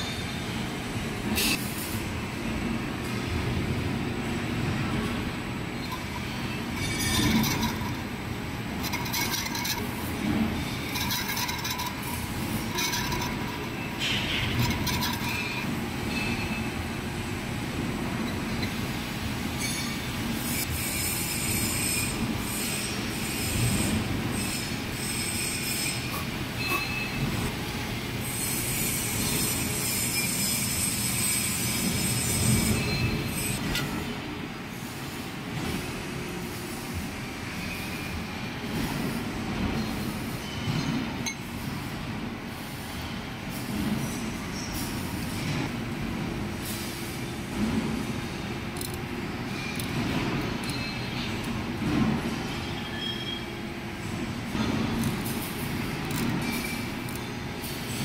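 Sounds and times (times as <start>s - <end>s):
high metallic cutting squeal: 5.8s - 8.2s, 8.8s - 16.8s, 24.4s - 27.3s, 28.2s - 33.6s, 52.4s - 53.6s.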